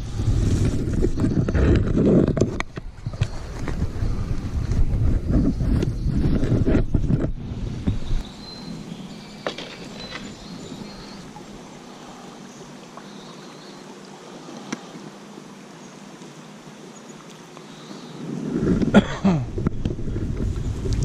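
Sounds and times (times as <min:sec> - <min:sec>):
wind buffeting microphone: 0:00.0 - 0:09.2, 0:18.2 - 0:21.0
river current hissing: 0:07.5 - 0:19.0.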